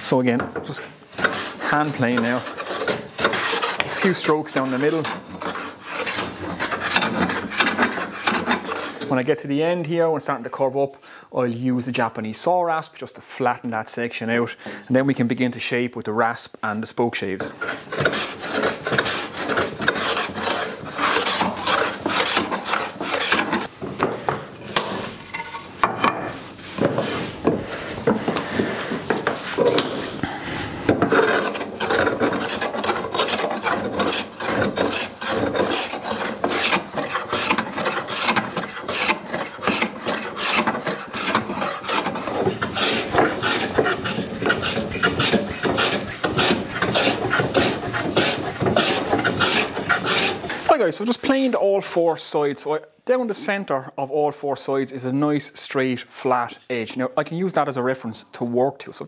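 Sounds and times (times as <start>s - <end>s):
hand plane shaving wood: 0.1s - 9.3s, 17.4s - 25.0s, 25.9s - 51.5s.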